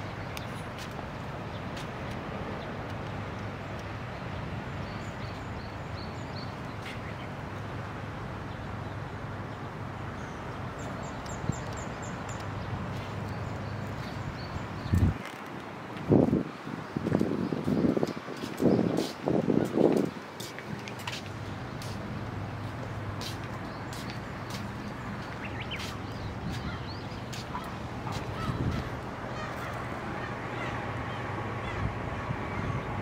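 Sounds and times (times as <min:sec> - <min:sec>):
outdoor background hiss: 0:00.0 - 0:33.0
birds calling: 0:16.8 - 0:33.0.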